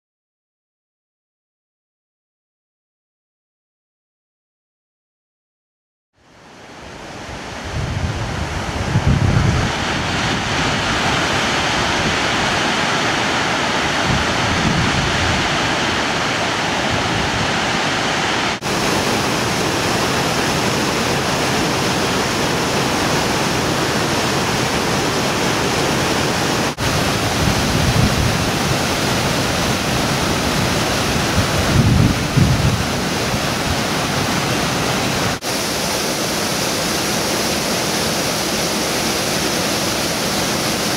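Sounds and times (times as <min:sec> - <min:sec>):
waterfall rushing: 0:06.2 - 0:40.9
wind gusts on microphone: 0:07.0 - 0:36.1.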